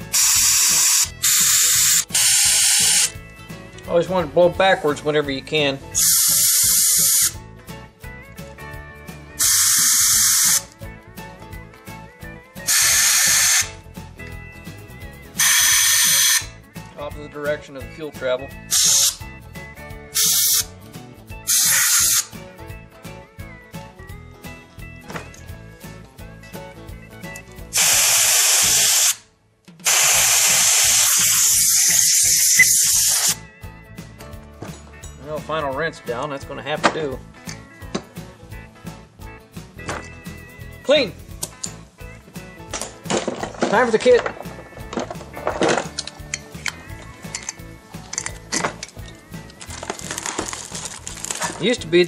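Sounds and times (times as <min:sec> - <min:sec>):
pressurized spray hissing: 0:00.0 - 0:03.1, 0:06.0 - 0:07.3, 0:09.4 - 0:10.6, 0:12.7 - 0:13.7, 0:15.4 - 0:16.5, 0:18.7 - 0:19.2, 0:20.2 - 0:20.7, 0:21.5 - 0:22.3, 0:27.8 - 0:29.2, 0:29.9 - 0:33.4
quiet background music: 0:00.0 - 0:52.0.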